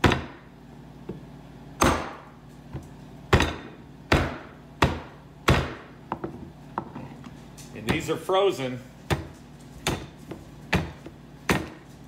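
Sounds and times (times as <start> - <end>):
knife chopping frozen ribs: 3.3 - 5.9, 9.0 - 11.9.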